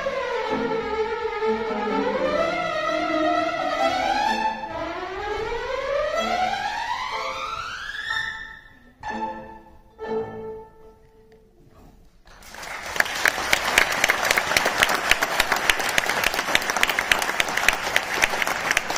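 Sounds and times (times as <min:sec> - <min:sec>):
violins and piano playing: 0:00.0 - 0:11.4
audience applause: 0:12.3 - 0:18.9.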